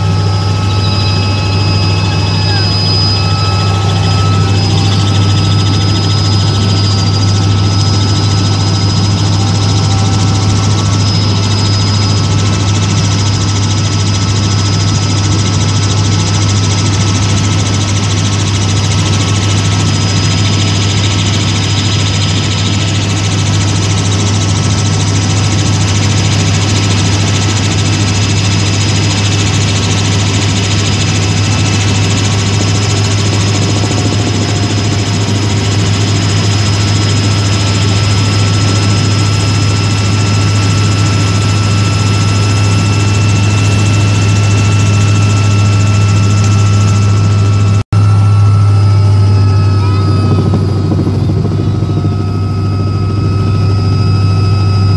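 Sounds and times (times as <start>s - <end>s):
helicopter cabin drone: 0.0s - 54.9s
high whine: 0.0s - 54.9s.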